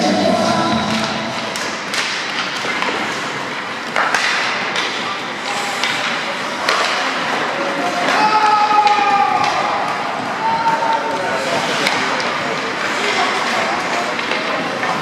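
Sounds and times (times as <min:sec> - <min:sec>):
skates scraping on ice: 0:00.4 - 0:15.0
hockey sticks and puck knocking: 0:00.9 - 0:15.0.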